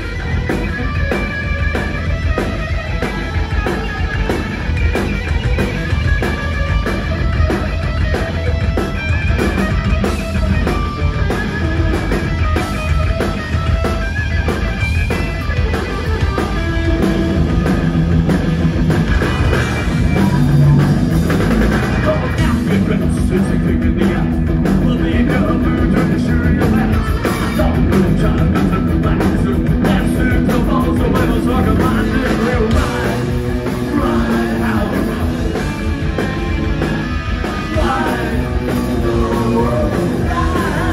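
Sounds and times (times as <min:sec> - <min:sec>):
bass guitar: 0:00.0 - 0:40.9
drum kit fast beat: 0:00.0 - 0:40.9
electric guitar: 0:00.0 - 0:40.9
person singing: 0:22.0 - 0:35.3, 0:37.4 - 0:40.9.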